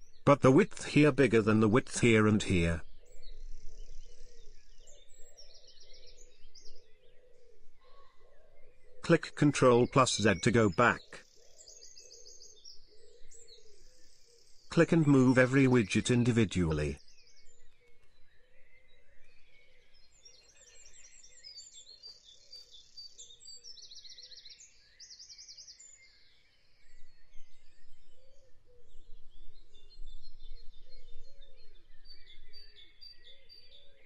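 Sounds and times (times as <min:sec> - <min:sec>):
birds chirping and trilling: 0:00.0 - 0:34.0
softer lower bird calls: 0:00.0 - 0:34.0.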